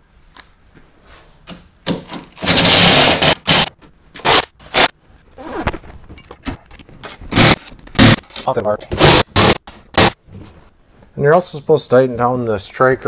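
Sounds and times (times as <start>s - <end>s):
impact driver tightening bolts: 7.1s - 10.1s.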